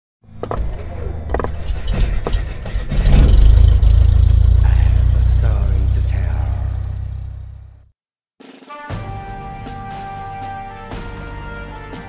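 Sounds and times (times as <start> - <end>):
loud deep rumble: 1.5 - 7.9
sharp hits: 1.9 - 7.7.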